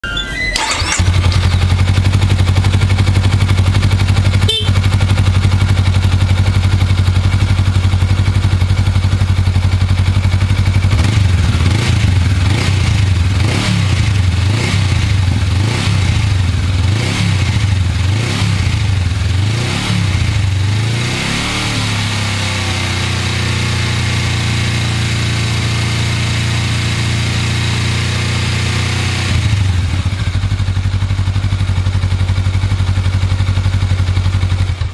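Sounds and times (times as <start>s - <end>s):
motorcycle engine idling and revving: 0.7s - 34.9s.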